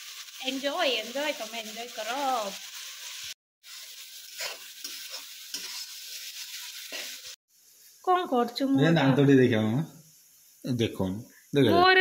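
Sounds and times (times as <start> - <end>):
food sizzling in oil: 0.0 - 12.0
spatula scraping pan: 3.8 - 7.4.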